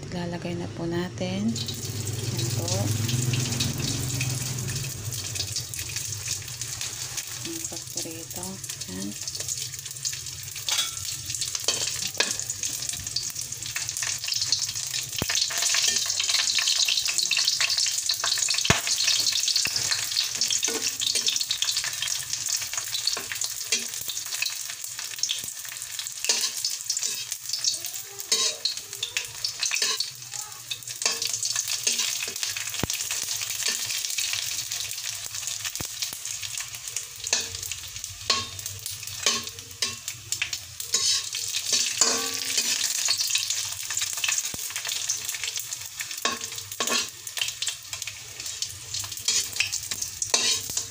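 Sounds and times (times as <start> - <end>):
fish sizzling in hot oil: 1.4 - 50.9
spatula scraping and tapping pan: 26.2 - 27.3, 28.3 - 28.7, 37.3 - 43.2, 46.2 - 47.2, 48.4 - 50.9.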